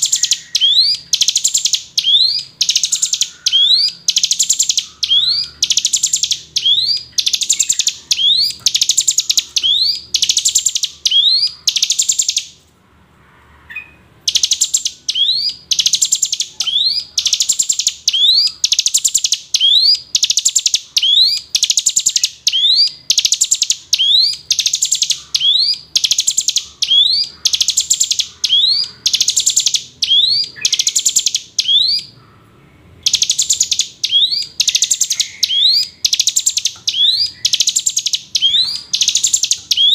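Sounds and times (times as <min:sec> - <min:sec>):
bird singing with rattling trill: 0:00.0 - 0:12.6, 0:13.7 - 0:39.9.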